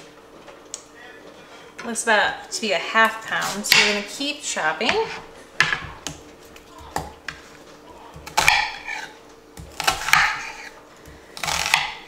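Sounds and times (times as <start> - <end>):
faint steady hum: 0.0 - 12.0
knife chopping on plastic board: 3.4 - 4.1, 4.8 - 12.0.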